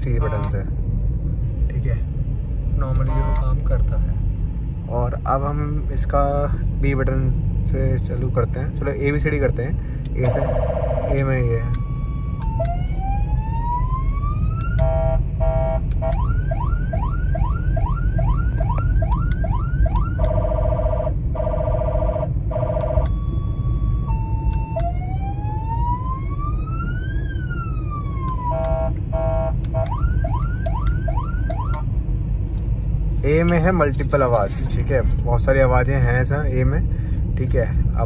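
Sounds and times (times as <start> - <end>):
car road noise: 0.0 - 38.0
car siren multi-tone wail and yelp: 10.2 - 31.9.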